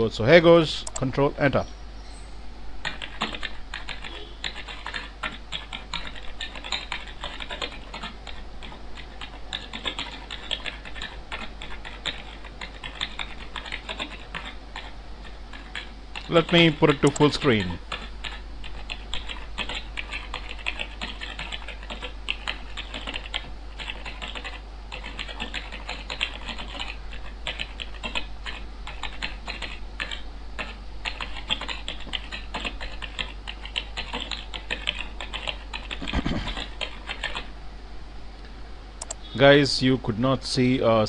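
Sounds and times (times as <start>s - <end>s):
steady low hum: 0.0s - 41.0s
typewriter keystroke clicks: 15.6s - 17.7s.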